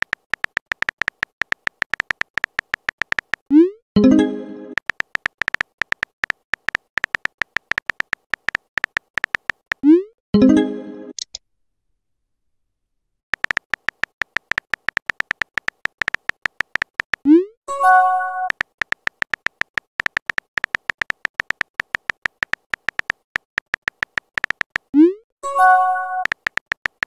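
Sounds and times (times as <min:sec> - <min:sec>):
phone keyboard typing clicks: 0:00.0 - 0:03.7, 0:04.7 - 0:09.9, 0:13.4 - 0:25.0, 0:25.7 - 0:27.0
message notification chime: 0:04.0 - 0:04.8, 0:10.4 - 0:11.1.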